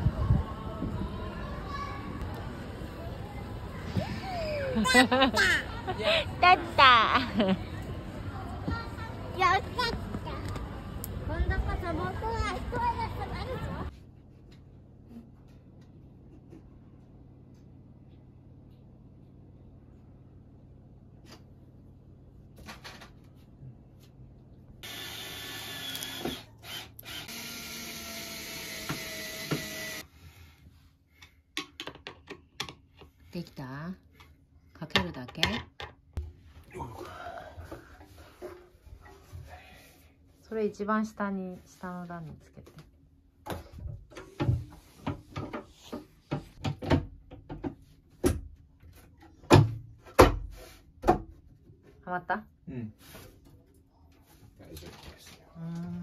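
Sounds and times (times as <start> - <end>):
cordless drill whining: 24.8 - 30.0.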